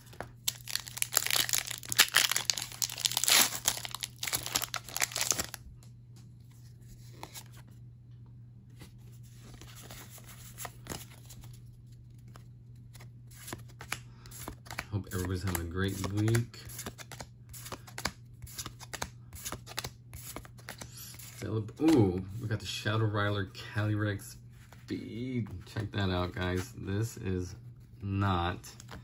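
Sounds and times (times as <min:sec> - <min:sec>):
cards clicking and rustling: 0:00.0 - 0:05.6, 0:09.4 - 0:22.3
foil wrapper tearing and crinkling: 0:00.4 - 0:05.6.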